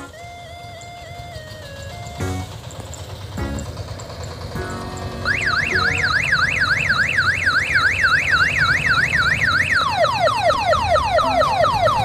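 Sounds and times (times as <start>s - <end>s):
diesel engine running: 0.0s - 12.0s
electronic siren wailing: 5.2s - 12.0s.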